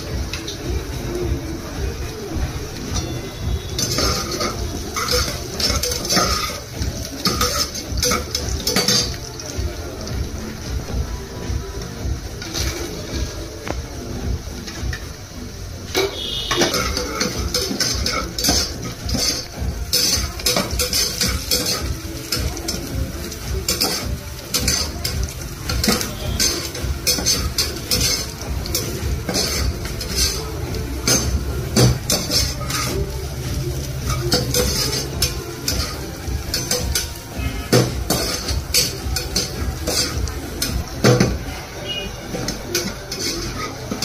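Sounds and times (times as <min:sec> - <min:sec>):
metal spoon scraping a pot: 0:03.0 - 0:09.4, 0:15.9 - 0:33.0, 0:34.0 - 0:41.3, 0:41.9 - 0:44.0.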